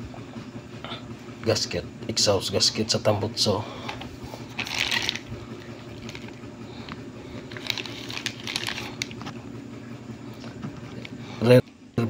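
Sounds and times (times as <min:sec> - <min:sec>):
steady low hum: 0:00.0 - 0:12.0
crinkling plastic: 0:04.5 - 0:06.4, 0:07.4 - 0:09.3.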